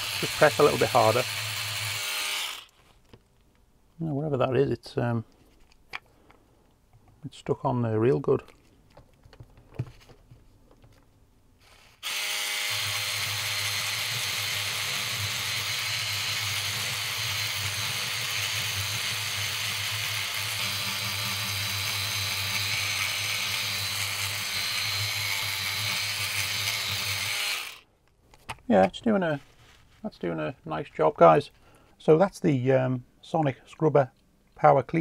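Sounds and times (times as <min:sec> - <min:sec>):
electric scrubbing brush buzzing: 0:00.0 - 0:02.7, 0:11.7 - 0:27.8.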